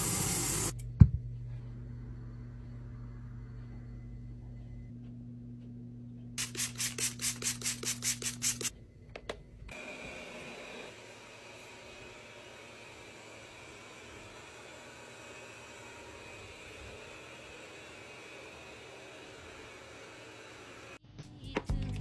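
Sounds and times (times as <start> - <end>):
low steady hum: 0.7 - 6.4
spray bottle squeezes hissing: 6.4 - 8.7.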